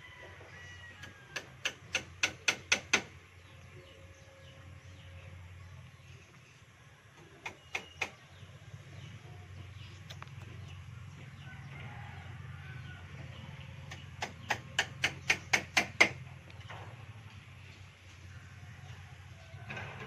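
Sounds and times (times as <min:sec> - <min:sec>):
hammer striking bamboo: 0:01.3 - 0:03.2, 0:07.4 - 0:08.2, 0:13.9 - 0:16.2.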